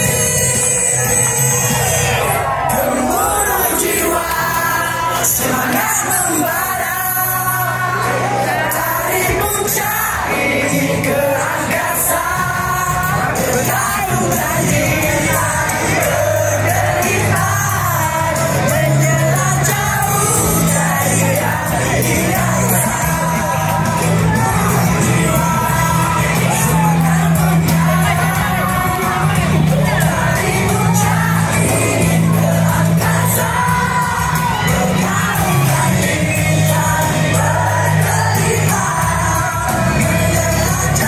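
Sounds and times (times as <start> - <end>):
group singing along to pop music: 0.0 - 41.0
people shouting and whooping: 0.0 - 41.0.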